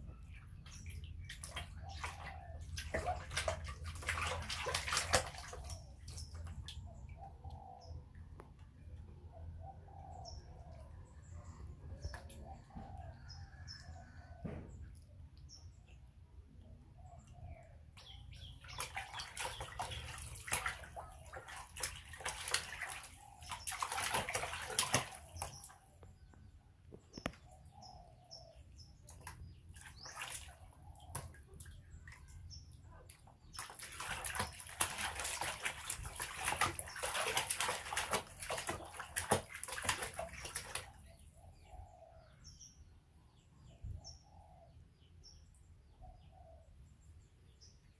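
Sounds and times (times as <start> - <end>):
water splashing in a plastic basin: 0.0 - 7.2, 17.9 - 26.2, 29.0 - 41.2
faint bird chirps: 5.6 - 15.9.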